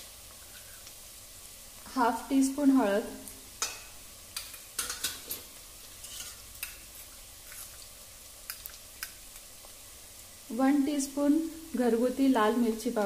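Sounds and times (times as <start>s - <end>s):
onion sizzling in hot oil: 0.0s - 13.0s
sharp pops and clicks: 8.4s - 9.8s.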